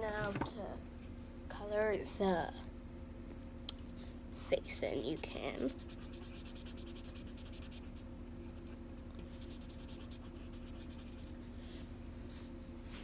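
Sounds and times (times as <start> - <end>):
felt-tip marker scribbling on paper: 4.8 - 8.0, 9.2 - 11.4.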